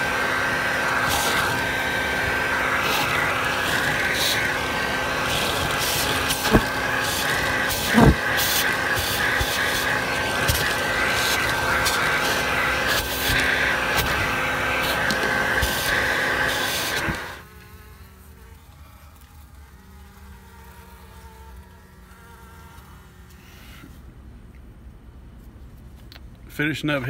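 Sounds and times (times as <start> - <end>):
vacuum whine: 0.0 - 17.8
bees buzzing: 0.0 - 23.8.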